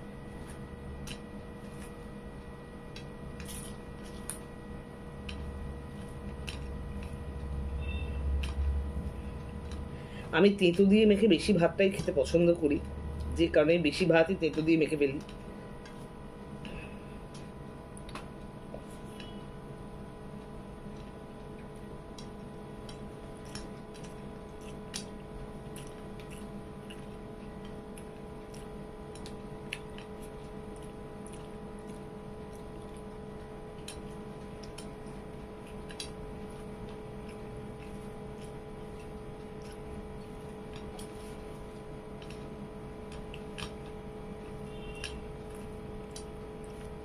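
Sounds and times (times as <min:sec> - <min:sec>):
steady background hum: 0:00.0 - 0:47.0
chewing: 0:00.3 - 0:04.5, 0:05.1 - 0:11.3, 0:20.2 - 0:47.0.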